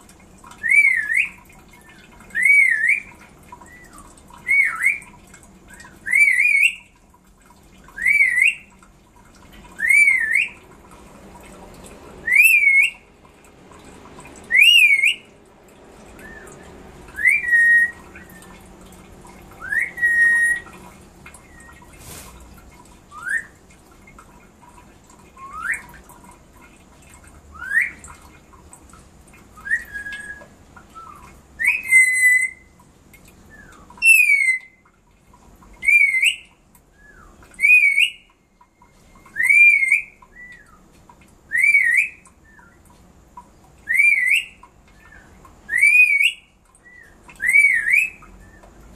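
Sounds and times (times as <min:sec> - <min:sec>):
bird calling with short whistles: 0:00.6 - 0:05.1, 0:05.8 - 0:06.9, 0:08.0 - 0:08.7, 0:12.2 - 0:13.0, 0:14.5 - 0:15.3, 0:16.2 - 0:18.6, 0:19.6 - 0:20.7, 0:23.1 - 0:23.6, 0:25.4 - 0:25.9, 0:29.6 - 0:32.7, 0:33.5 - 0:34.8, 0:35.8 - 0:40.9, 0:41.5 - 0:42.8, 0:43.8 - 0:48.6.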